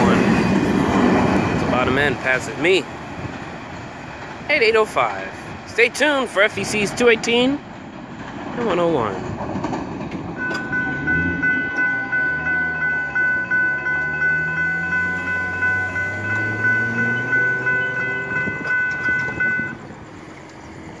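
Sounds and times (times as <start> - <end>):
railroad crossing bell ringing: 10.3 - 21.0.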